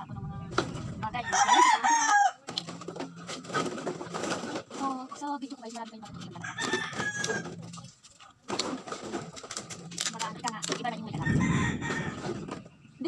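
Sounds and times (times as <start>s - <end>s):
rooster crowing: 1.2s - 2.4s, 6.4s - 7.5s, 11.2s - 12.5s
plastic bottles clattering: 2.5s - 6.1s, 6.7s - 11.1s.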